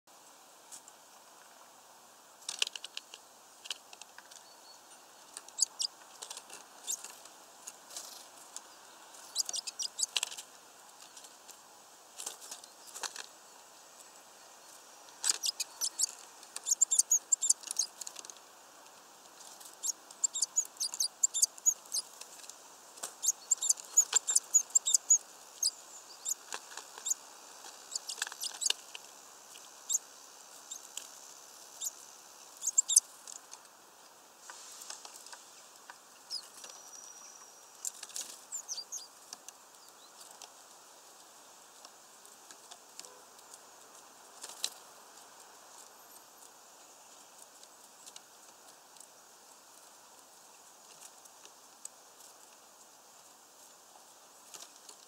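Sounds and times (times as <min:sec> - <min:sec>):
birds pecking at peanuts: 0:15.1 - 0:32.0.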